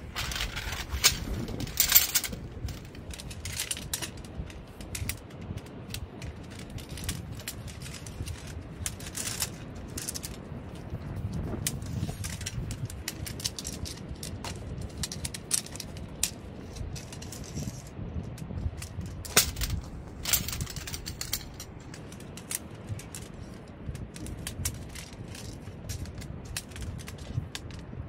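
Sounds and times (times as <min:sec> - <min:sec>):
wind and surf rumble: 0:00.0 - 0:28.0
metal tent poles clicking: 0:00.1 - 0:10.4, 0:19.3 - 0:23.6.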